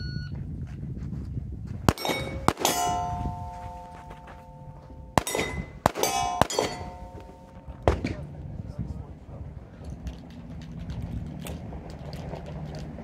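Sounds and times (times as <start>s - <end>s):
steel target plates ringing: 1.9s - 7.8s
pistol shots: 1.9s - 8.2s.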